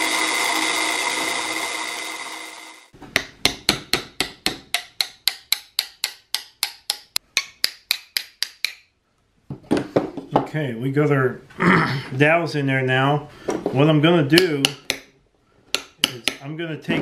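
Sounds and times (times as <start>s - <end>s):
drill press running: 0.0s - 3.0s
hammer driving metal rods: 0.0s - 8.9s, 15.7s - 16.5s.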